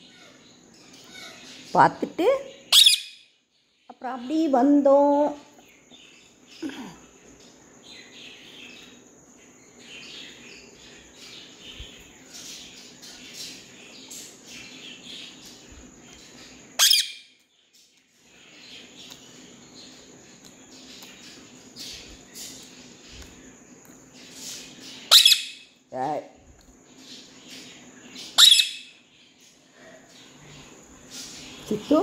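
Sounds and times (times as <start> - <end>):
parakeet chirping and chattering: 0.0 - 4.9, 5.5 - 25.9, 26.7 - 32.0
parakeet shrieking: 1.0 - 1.5, 2.7 - 3.2, 16.8 - 17.3, 25.1 - 25.7, 28.4 - 28.9.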